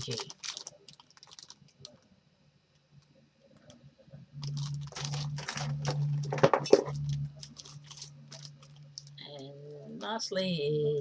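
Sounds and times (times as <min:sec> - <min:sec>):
plastic packaging crinkling: 0:00.0 - 0:02.0, 0:04.4 - 0:09.2.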